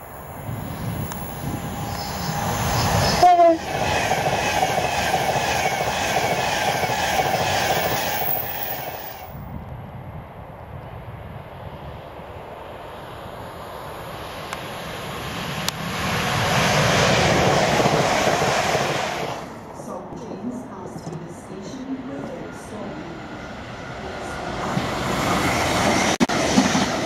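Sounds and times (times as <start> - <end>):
rush of wheels and air: 0.0 - 5.6, 7.2 - 19.7
electric train passing at speed: 0.0 - 27.0
train horn toot: 3.1 - 3.7.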